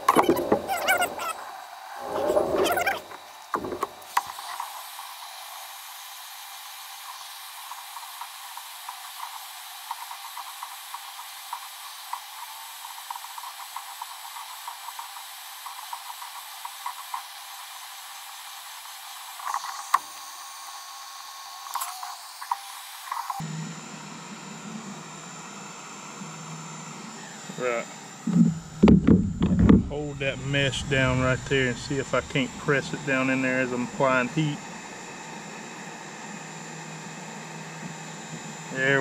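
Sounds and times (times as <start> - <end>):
knocks: 28.3 - 30.0.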